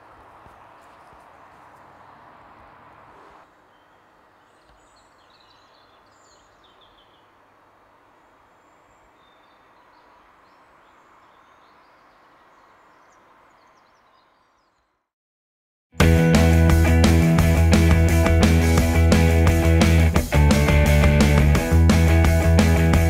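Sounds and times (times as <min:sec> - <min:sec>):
faint outdoor hiss: 0:00.0 - 0:15.0
small birds chirping: 0:00.0 - 0:15.0.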